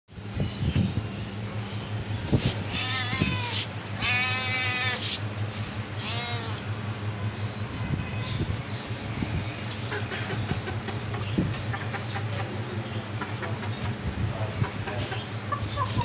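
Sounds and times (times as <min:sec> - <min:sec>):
steady low hum: 0:00.1 - 0:16.0
cat meowing: 0:02.7 - 0:05.0, 0:06.0 - 0:06.6, 0:07.7 - 0:08.6.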